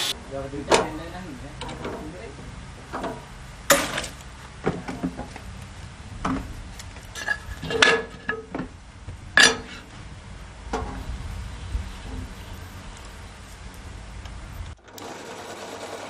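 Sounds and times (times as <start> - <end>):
metallic clanks on iron table: 7.2 - 8.7, 9.4 - 9.8.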